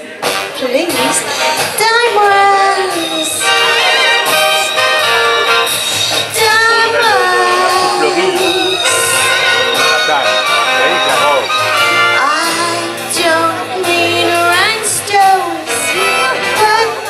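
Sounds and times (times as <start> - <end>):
backing music: 0.0 - 17.0
woman singing into microphone: 0.6 - 4.4, 6.2 - 9.1, 12.1 - 17.0.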